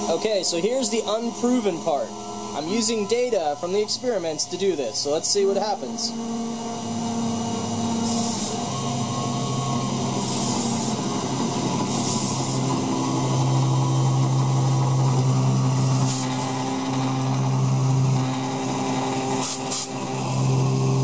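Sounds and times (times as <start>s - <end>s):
end mill cutting metal: 0.0s - 21.0s
milling motor hum: 0.0s - 21.0s
air nozzle hisses: 6.7s - 21.0s.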